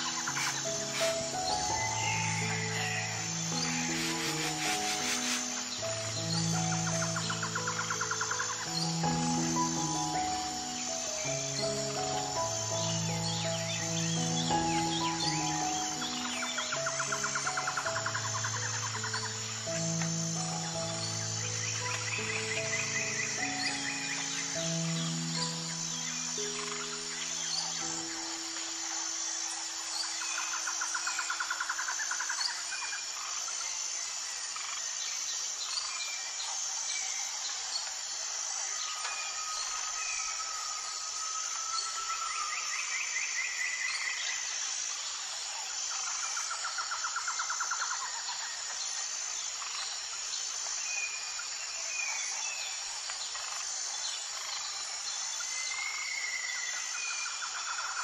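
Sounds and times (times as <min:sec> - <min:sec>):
high-pitched insect chirring: 0:00.0 - 0:58.0
songbirds singing: 0:00.0 - 0:58.0.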